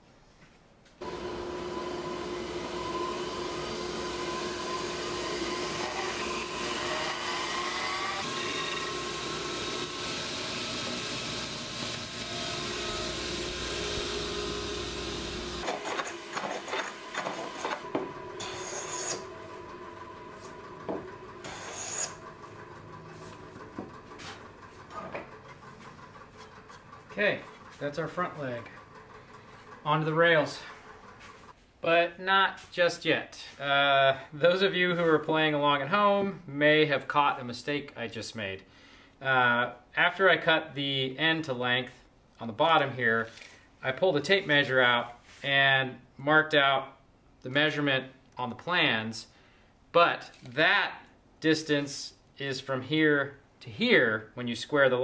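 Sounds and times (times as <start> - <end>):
bandsaw cutting wood: 1.0 - 24.5
wood pieces and tools knocking: 15.6 - 27.8.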